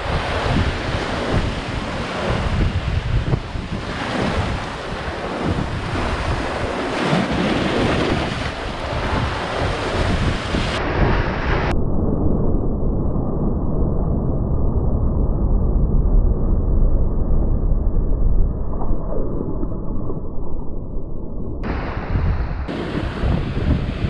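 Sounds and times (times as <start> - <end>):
waves breaking against rocks: 0.0 - 10.8
wind buffeting microphone: 0.0 - 11.7, 21.6 - 24.0
dull low rumble: 10.8 - 24.0.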